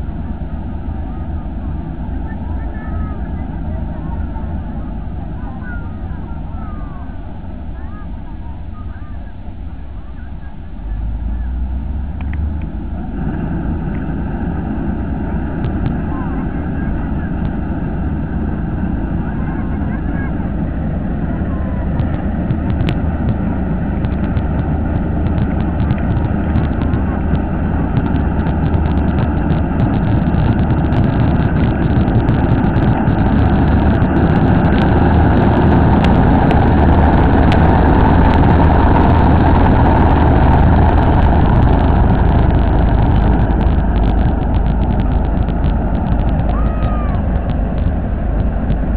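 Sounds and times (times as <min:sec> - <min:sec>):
combine harvester engine hum: 0:00.0 - 0:48.9
fast light ticks: 0:21.9 - 0:48.9.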